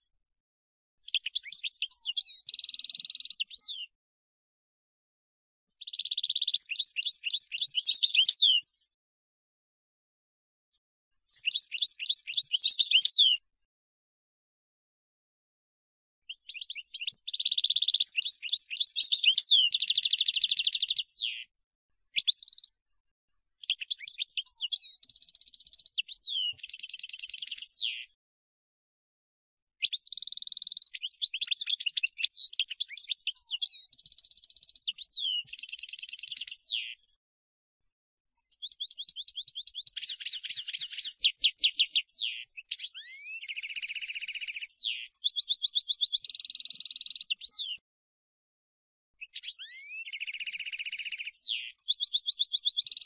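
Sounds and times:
goldfinch twittering song: 1.0s - 3.8s, 5.7s - 8.7s, 11.3s - 13.4s, 16.3s - 21.4s, 22.2s - 22.7s, 23.6s - 28.1s, 29.8s - 37.1s, 38.4s - 47.8s, 49.2s - 53.0s.

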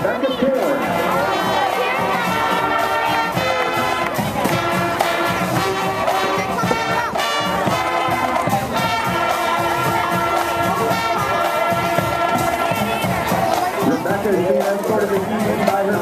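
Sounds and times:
brass horns sustaining chords: 0.0s - 13.0s
drum-line beat: 0.0s - 16.0s.

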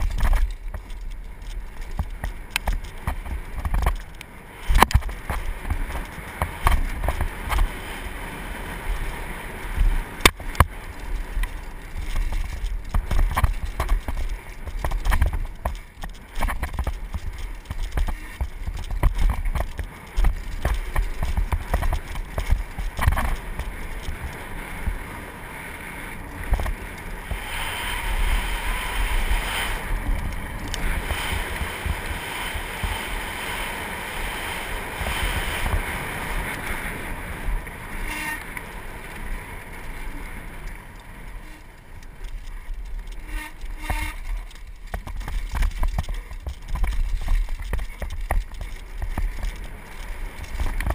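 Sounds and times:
bike rattling and knocking: 0.0s - 8.0s, 8.8s - 25.2s, 26.2s - 37.0s, 37.6s - 50.9s
tyres rolling over dirt: 0.0s - 50.9s
tyres hissing on gravel: 23.4s - 37.2s
wind buffeting microphone: 26.2s - 38.2s.

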